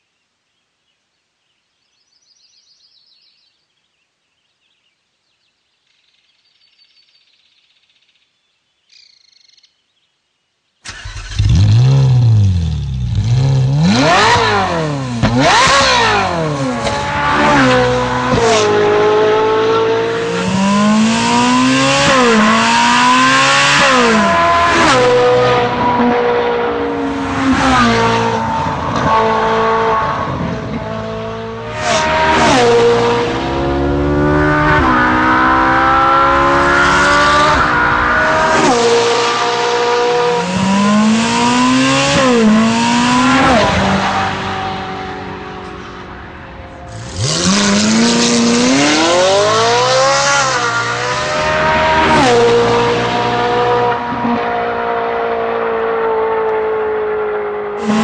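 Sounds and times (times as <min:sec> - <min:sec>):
faint bird chirps: 0:00.0 - 0:10.8
sports car engine revving: 0:10.9 - 0:58.0.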